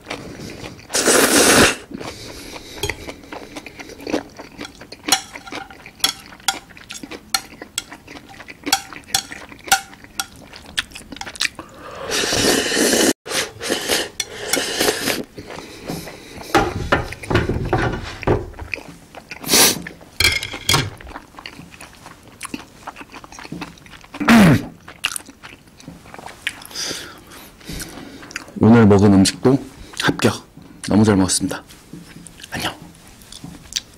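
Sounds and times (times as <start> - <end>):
eating noises: 0.0 - 16.5
slurping sauce: 0.2 - 9.6, 10.8 - 16.5, 19.4 - 20.0
chopsticks tapping on ceramic plate: 2.8 - 3.0, 4.6 - 10.4.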